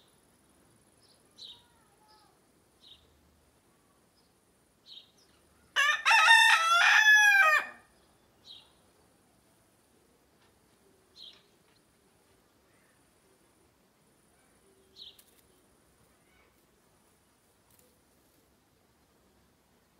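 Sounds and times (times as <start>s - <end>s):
rooster crowing: 5.8s - 7.9s.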